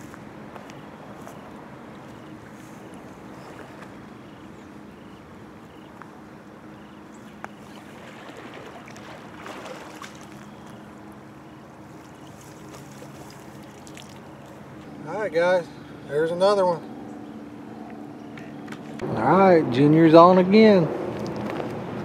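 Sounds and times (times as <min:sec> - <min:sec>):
fish splashing: 0:07.2 - 0:14.8.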